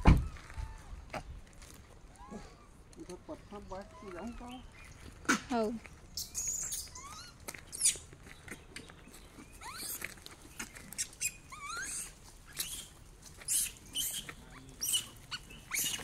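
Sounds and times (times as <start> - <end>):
monkeys squeaking and chirping: 3.6 - 5.0, 6.2 - 8.1, 9.3 - 16.0
footsteps on dry dirt: 4.1 - 11.1.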